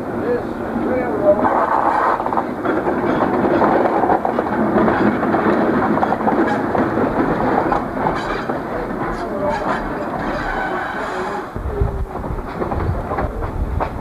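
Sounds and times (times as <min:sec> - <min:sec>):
diesel locomotive engine: 0:00.0 - 0:14.0
wheels clattering on rails: 0:00.0 - 0:14.0.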